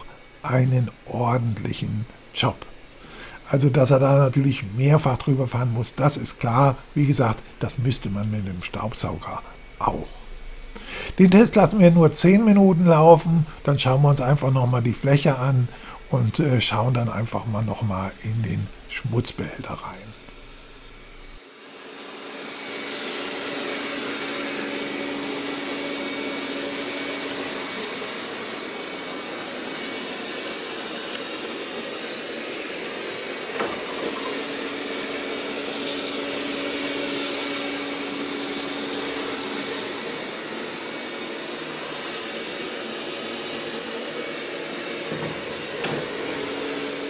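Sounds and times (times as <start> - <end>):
robot vacuum whirring: 19.9 - 47.0.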